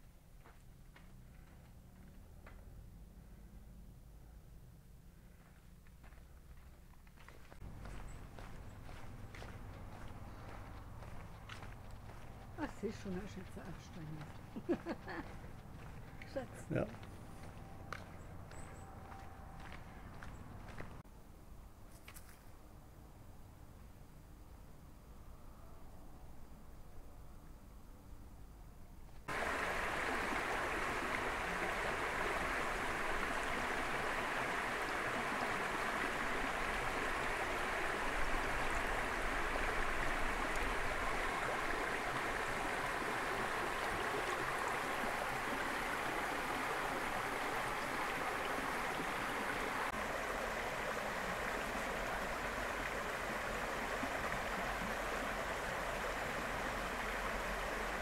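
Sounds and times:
stream rushing over rocks: 0:29.3 - 0:58.0.

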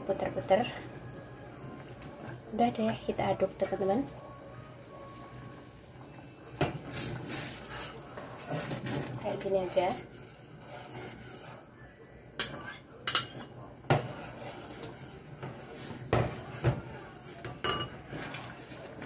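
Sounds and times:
spoon scraping a saucepan: 0:06.1 - 0:11.7, 0:12.4 - 0:19.0
spoon clinking against pot: 0:12.4 - 0:13.5, 0:17.5 - 0:18.0.

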